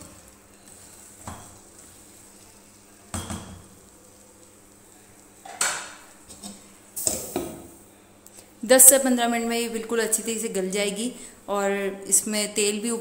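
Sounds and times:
spatula stirring in a pot: 0.0 - 5.2
faint sizzle: 0.0 - 13.0.

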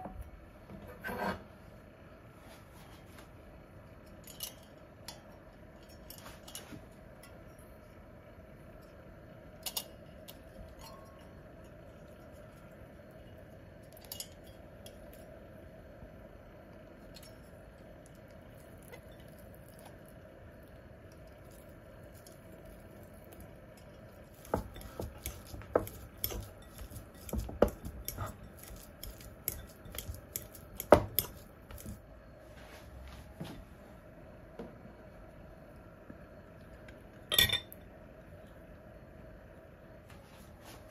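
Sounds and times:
fork clinking against glass bowl: 24.3 - 32.0.

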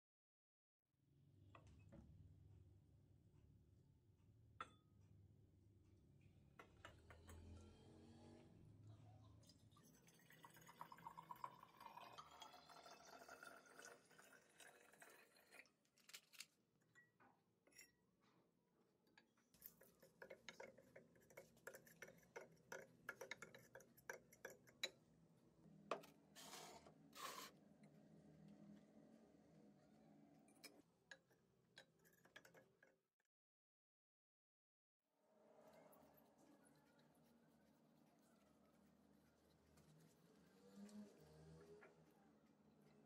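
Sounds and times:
liquid pouring into container: 9.5 - 16.4.

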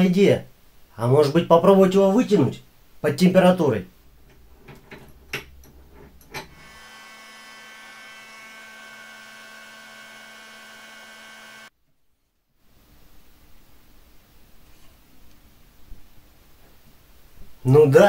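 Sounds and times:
heat gun fan whine: 6.5 - 11.7.

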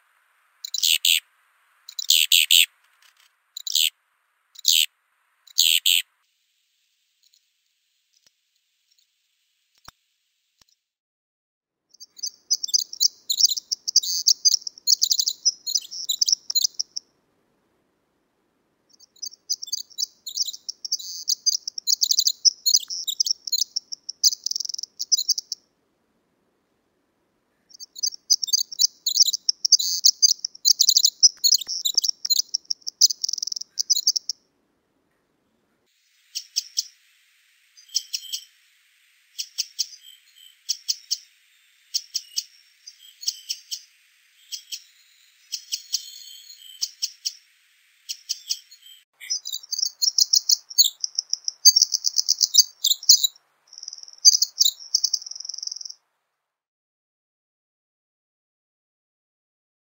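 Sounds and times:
wren trilled song: 0.0 - 6.2, 11.9 - 17.1, 18.9 - 25.7, 27.6 - 34.5, 35.9 - 56.0
bird call notes: 0.6 - 1.2, 5.5 - 6.1.

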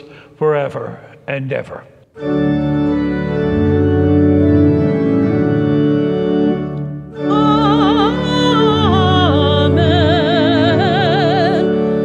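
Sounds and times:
organ playing sustained chords: 0.0 - 12.0
person singing with vibrato: 7.2 - 12.0.

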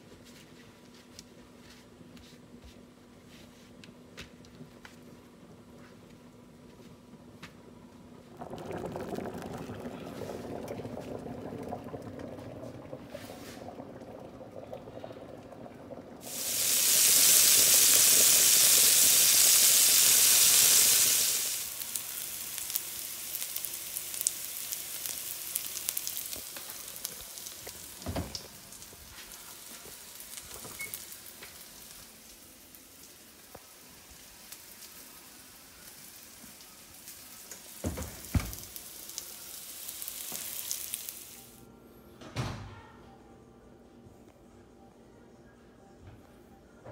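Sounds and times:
water bubbling at a boil: 8.2 - 19.7
loud sizzle: 8.2 - 41.6
onions frying with small pops: 16.2 - 35.0, 35.8 - 41.4.

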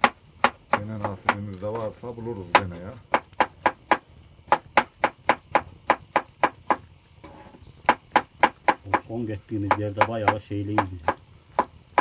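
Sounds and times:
knife chopping on wooden board: 2.5 - 6.9, 7.8 - 12.0.

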